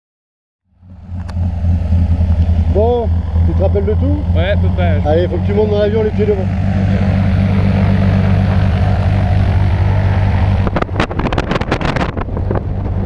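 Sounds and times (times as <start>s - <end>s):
light aircraft engine and propeller: 0.7s - 13.0s
wind buffeting microphone: 5.1s - 13.0s.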